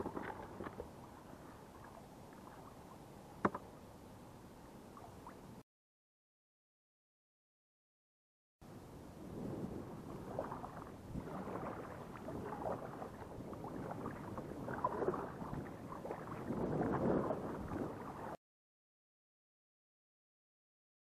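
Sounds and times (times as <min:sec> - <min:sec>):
kayak paddle strokes in water: 0:00.0 - 0:03.8, 0:09.4 - 0:18.4.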